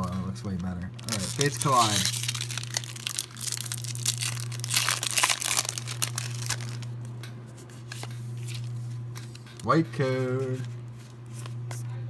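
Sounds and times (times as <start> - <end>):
steady low hum: 0.0 - 12.0
foil wrapper crinkling and tearing: 0.9 - 7.1.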